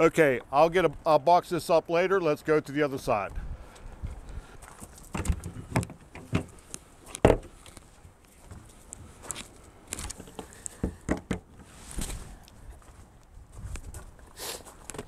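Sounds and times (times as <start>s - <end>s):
footsteps on gravel: 3.7s - 5.1s, 11.8s - 14.9s.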